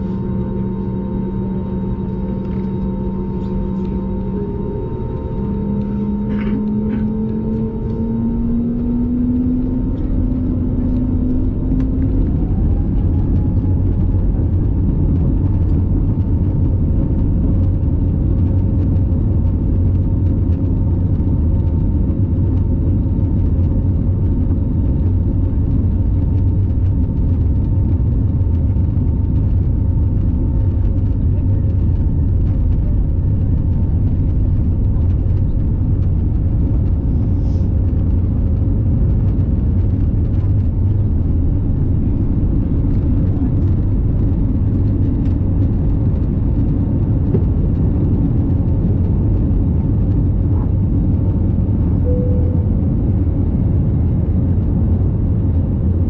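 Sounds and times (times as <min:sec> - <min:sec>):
jet engines spooling up: 0:00.0 - 0:10.7
wheels rumbling on runway: 0:00.0 - 0:56.0.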